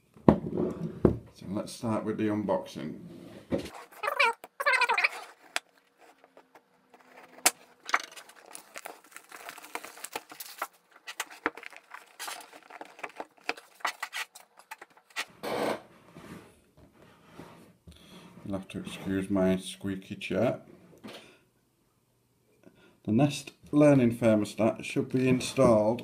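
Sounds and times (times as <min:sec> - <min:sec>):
cardboard rustling and sliding: 0:03.1 - 0:15.3
squeaky chair creaking: 0:03.7 - 0:10.5, 0:11.6 - 0:16.0
plastic wrap crinkling and tearing: 0:03.8 - 0:15.3.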